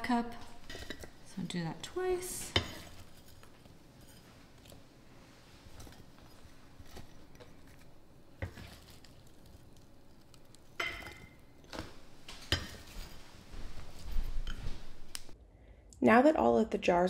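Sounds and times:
metal cup clinking against glass jars: 0:10.8 - 0:11.6.

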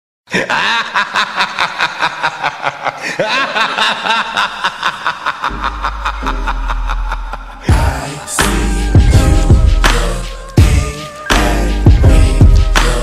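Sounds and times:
person cackling: 0:00.3 - 0:08.4
low steady drone: 0:05.5 - 0:07.8.

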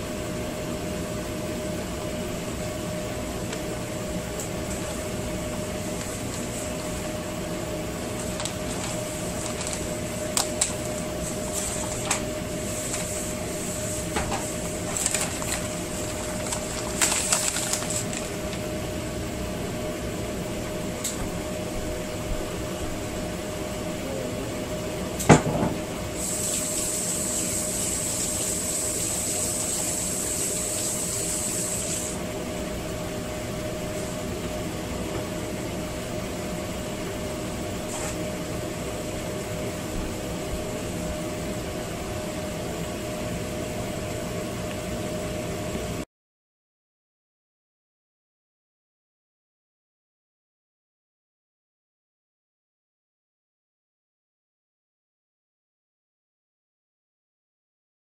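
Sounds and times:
steady machine hum: 0:00.0 - 0:46.1
hiss: 0:26.1 - 0:32.2.

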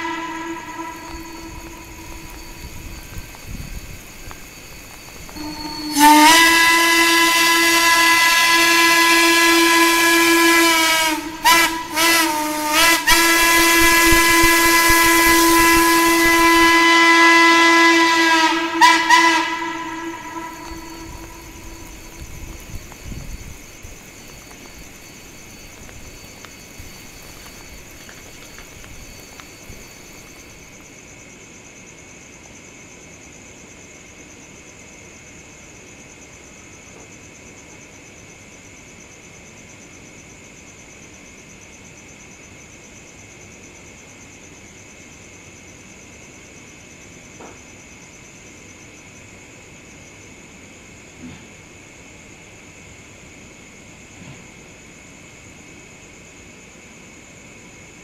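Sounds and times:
steam whistle blowing: 0:00.0 - 0:30.8
faint steady hiss: 0:00.0 - 0:58.0.

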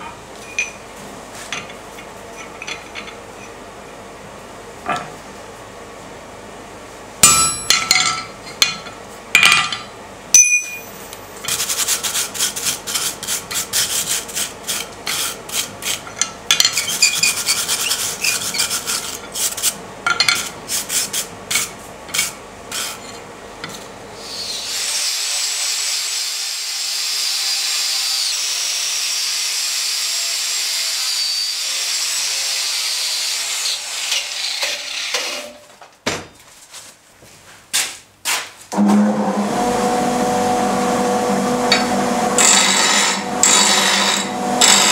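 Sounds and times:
angle grinder grinding steel: 0:39.0 - 0:44.9.

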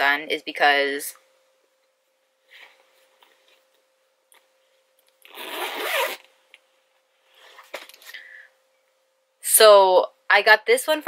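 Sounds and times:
faint handling sounds: 0:02.3 - 0:05.2
zipper pulled: 0:05.2 - 0:06.3.

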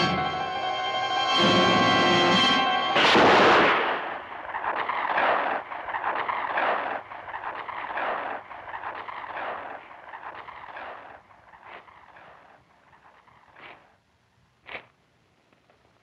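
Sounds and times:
rushing noisy swells: 0:00.0 - 0:13.6
revolver shot: 0:03.0 - 0:11.2.

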